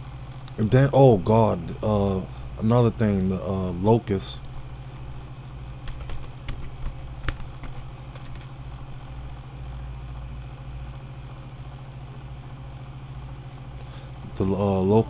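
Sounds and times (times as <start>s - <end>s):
steady low hum: 0.0s - 15.0s
computer keyboard typing: 5.8s - 8.5s.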